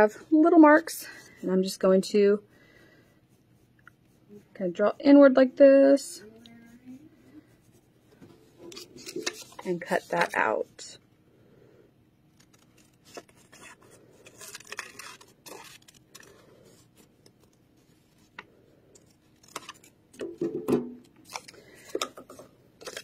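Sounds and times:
paper rustling: 0:08.5 - 0:10.8, 0:12.4 - 0:18.4, 0:21.2 - 0:23.0
scissors snipping paper: 0:12.4 - 0:16.3.

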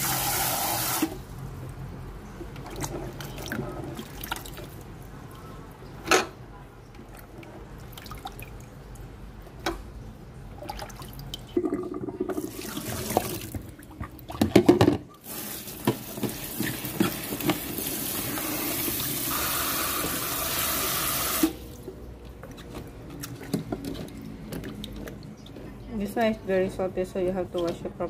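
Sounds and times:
water splashing in sink: 0:02.5 - 0:05.0, 0:07.1 - 0:09.8, 0:10.5 - 0:25.7.

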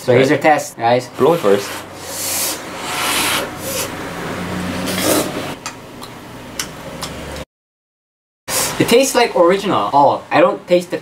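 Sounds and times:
slurping noodles: 0:01.2 - 0:04.0, 0:04.8 - 0:05.6
person blowing on food: 0:01.4 - 0:03.9.

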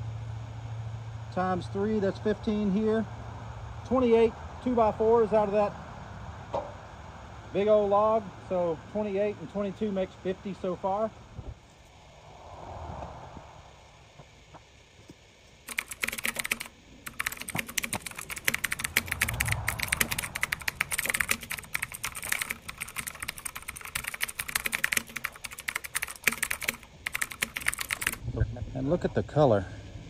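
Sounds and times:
computer keyboard typing: 0:15.7 - 0:28.2.

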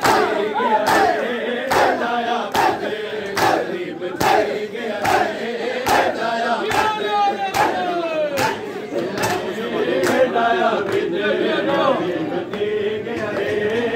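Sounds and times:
crowd of men chanting: 0:00.0 - 0:13.9
hands slapping chests: 0:07.5 - 0:08.6.

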